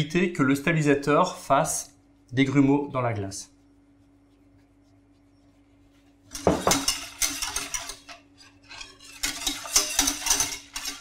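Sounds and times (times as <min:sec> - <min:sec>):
faint steady hum: 0:00.0 - 0:07.1
whisk clattering in metal saucepan: 0:06.3 - 0:11.0.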